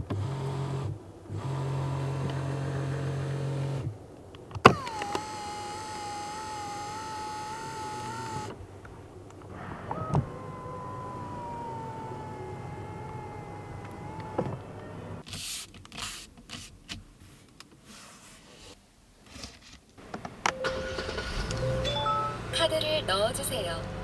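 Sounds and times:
electric seat motor whining: 0.0 - 3.9, 4.6 - 8.6, 9.4 - 15.2
seat clicks: 4.4 - 8.6, 9.3 - 17.8
soft rustles: 15.2 - 20.0.

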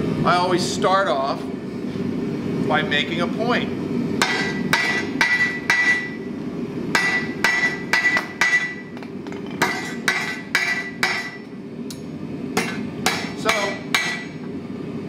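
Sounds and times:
hammer striking steel on anvil: 4.2 - 6.2, 6.9 - 12.0, 12.6 - 14.4.

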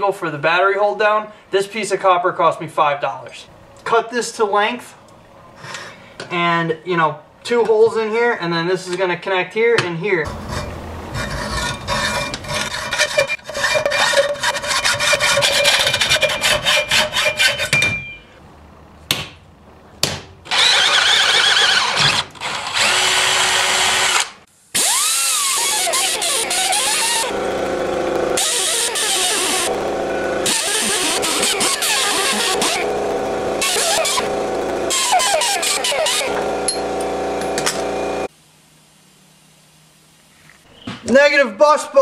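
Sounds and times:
abrasive disc grinding metal: 10.3 - 17.8, 20.5 - 24.2, 24.9 - 38.3
hacksaw cutting metal: 10.3 - 18.0, 20.5 - 37.9
cordless drill boring metal: 20.5 - 38.3.

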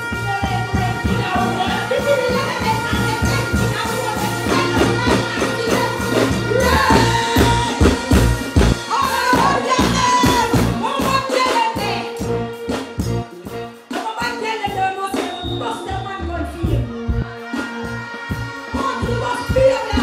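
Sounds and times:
woman singing into a microphone: 0.0 - 12.3, 14.0 - 20.0
live band music: 0.0 - 20.0
heavy bass beat: 4.5 - 11.2, 15.4 - 20.0.

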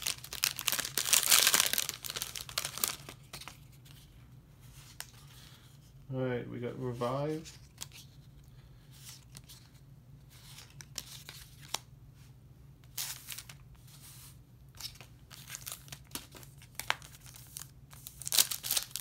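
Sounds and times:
cards rustling and snapping: 0.0 - 4.1, 10.4 - 11.9, 14.8 - 19.0.

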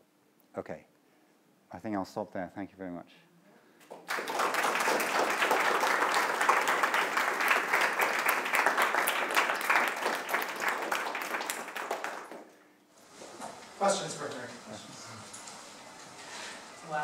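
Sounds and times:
audience applauding: 3.9 - 12.6.

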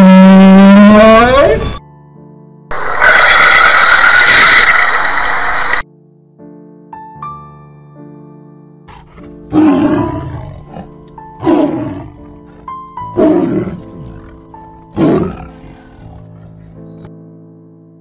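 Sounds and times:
soft piano music: 1.8 - 2.7, 5.8 - 18.0
tiger roaring: 8.9 - 17.1.

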